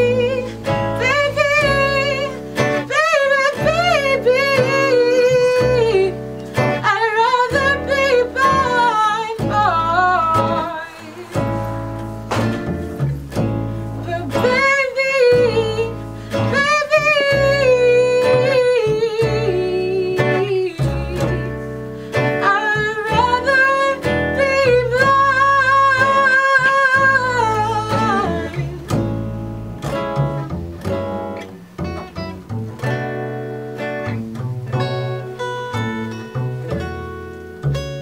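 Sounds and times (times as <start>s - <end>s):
woman singing: 0.0s - 12.0s, 13.9s - 29.2s
fingerpicked acoustic guitar: 0.0s - 38.0s
upright double bass: 0.0s - 38.0s.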